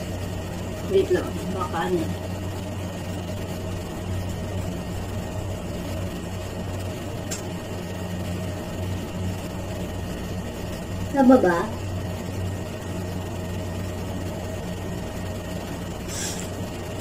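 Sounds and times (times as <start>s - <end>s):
low mechanical hum: 0.0s - 17.0s
sharp click: 7.3s - 7.5s.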